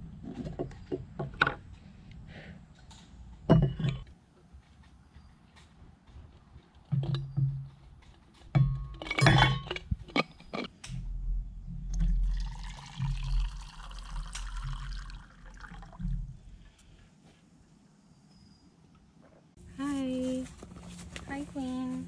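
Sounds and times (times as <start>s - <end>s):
water pouring into a mug: 12.1s - 16.0s.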